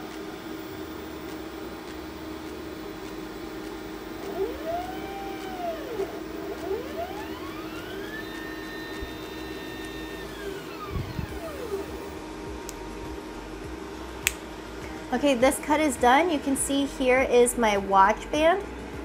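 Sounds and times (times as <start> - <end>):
fans humming: 0.0 - 19.0
motors whining: 4.2 - 12.2.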